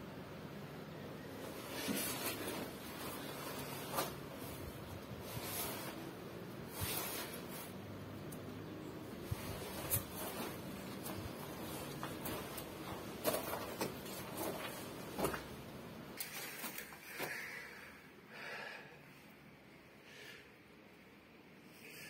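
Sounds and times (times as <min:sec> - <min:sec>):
faint rustling: 0:09.2 - 0:15.6
handling noise: 0:09.2 - 0:17.0
footsteps on rocky ground: 0:11.0 - 0:15.5.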